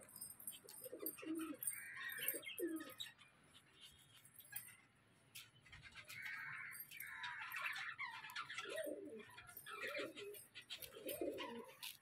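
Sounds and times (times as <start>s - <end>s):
budgerigars chattering and warbling: 5.5s - 12.0s.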